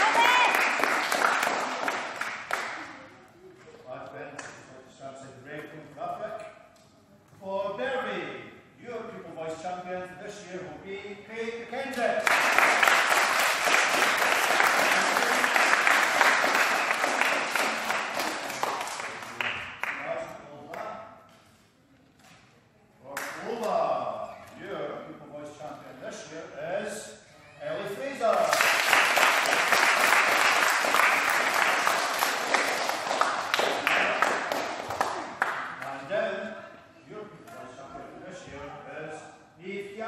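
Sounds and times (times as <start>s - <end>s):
hands clapping: 0.0s - 3.0s, 11.9s - 20.1s, 23.1s - 23.5s, 28.3s - 36.0s.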